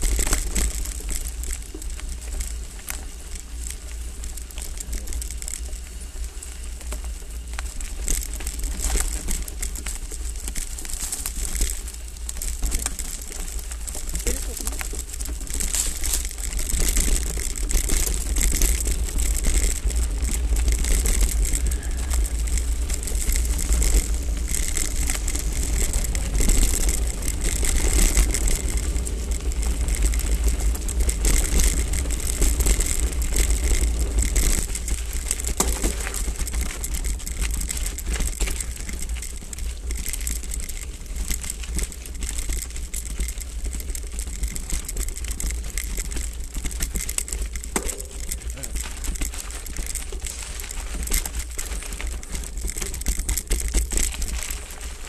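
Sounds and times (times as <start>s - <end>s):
bike rattling over bumps: 0.0s - 55.0s
tyres crunching on gravel: 0.0s - 55.0s.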